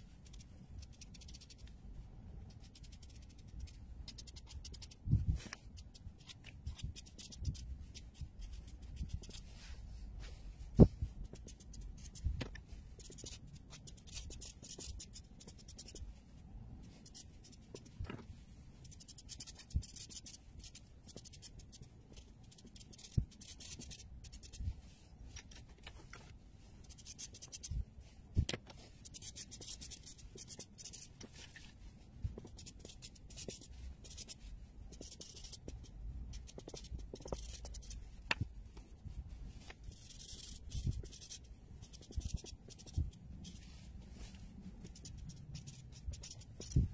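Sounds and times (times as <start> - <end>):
marker scratching on paper: 0.2 - 1.7, 2.5 - 9.8, 10.8 - 16.2, 16.8 - 46.9
marker tapping: 11.3 - 16.0, 34.9 - 38.5, 39.7 - 43.1, 44.8 - 46.9.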